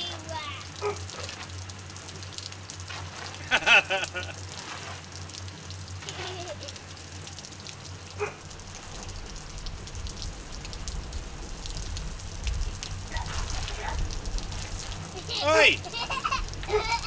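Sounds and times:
hose spray pattering on hat and coat: 0.0s - 6.8s, 12.5s - 17.0s
water splashing on wooden deck: 0.0s - 17.0s
low rumble: 8.5s - 17.0s.

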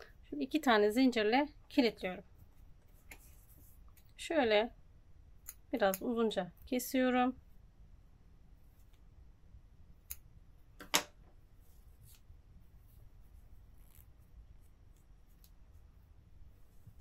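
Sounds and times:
scissors snipping yarn: 5.4s - 6.7s.

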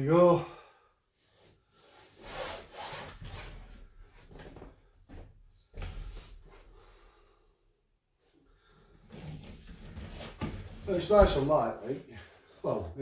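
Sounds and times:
fabric rustling: 1.8s - 5.2s.

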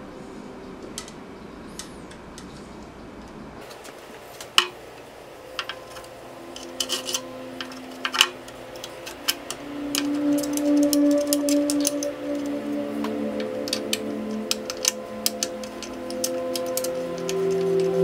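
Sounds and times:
metallic clicks of brake caliper: 5.6s - 18.0s.

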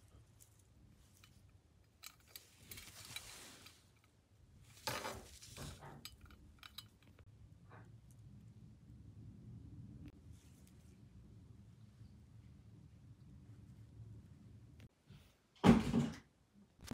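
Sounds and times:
metal diadem clinking and rustling: 0.0s - 7.2s.

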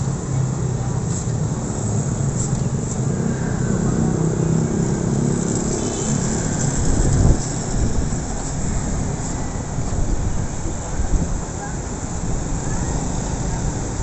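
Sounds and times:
auto rickshaw engines: 0.0s - 14.0s
motorcycles running: 0.0s - 14.0s.

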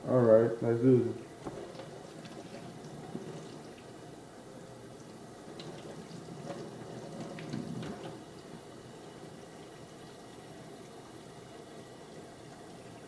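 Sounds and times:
faucet running into sink: 1.4s - 4.2s, 5.0s - 11.4s
water splashing on hair: 5.5s - 8.4s.

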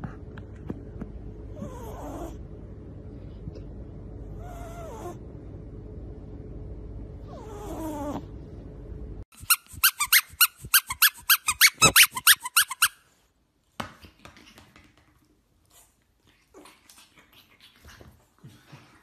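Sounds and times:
high-pitched squeaks: 9.4s - 13.0s.

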